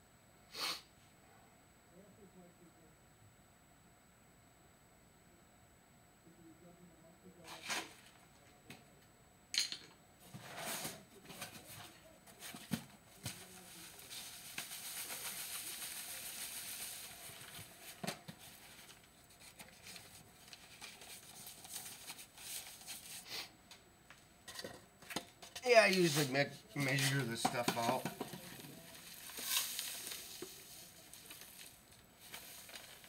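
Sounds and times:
steady hiss: 0.4 - 1.0, 10.7 - 23.6, 25.6 - 33.0
containers and utensils clinking: 24.5 - 33.0.

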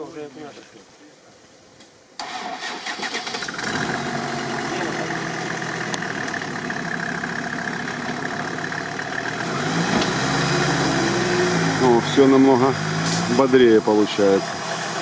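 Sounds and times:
truck engine idling: 3.5 - 15.0.

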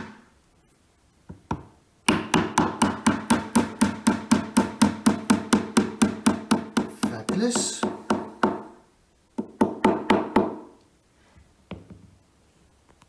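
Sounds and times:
hammer tapping wooden dowels: 1.3 - 8.8, 9.4 - 10.8.

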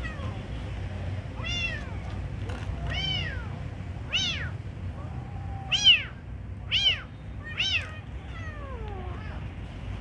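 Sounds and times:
kittens meowing: 1.4 - 2.1, 2.9 - 9.5.

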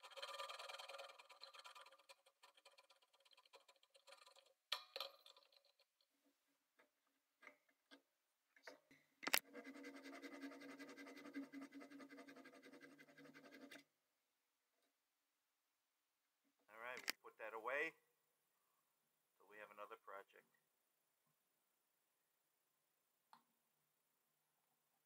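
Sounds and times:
hand saw cutting wood: 0.0 - 4.4, 9.4 - 13.8.

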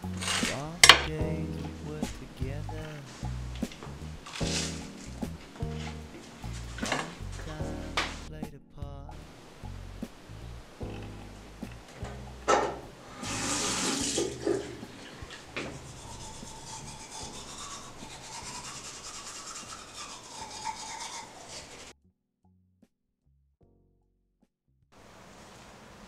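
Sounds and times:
rubbing at the sink: 3.1 - 8.2, 13.2 - 21.9
tap running into sink: 12.5 - 15.8.

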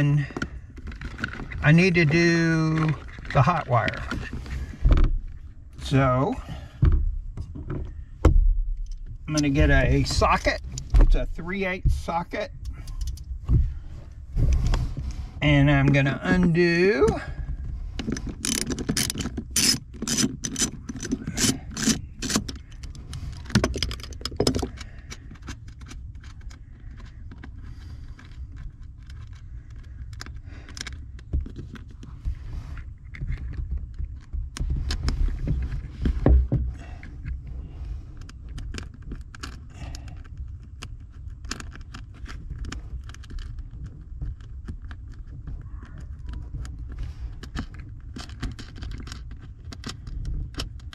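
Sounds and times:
ratchet wrench clicking: 18.4 - 22.4.

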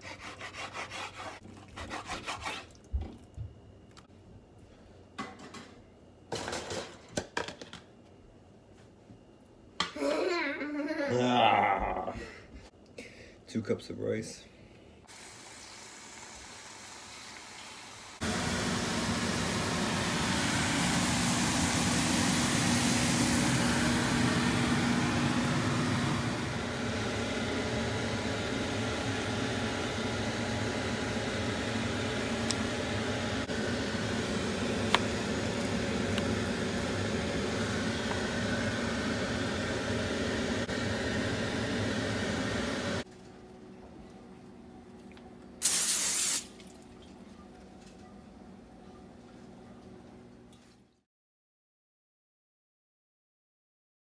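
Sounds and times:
whirring machine with low hum: 1.4 - 7.1, 46.6 - 51.0.

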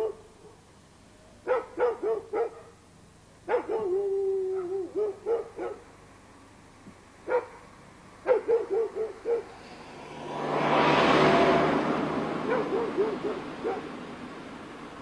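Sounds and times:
dog barking: 0.0 - 0.6, 1.4 - 2.8, 3.5 - 5.9, 7.2 - 9.6, 12.5 - 13.9.

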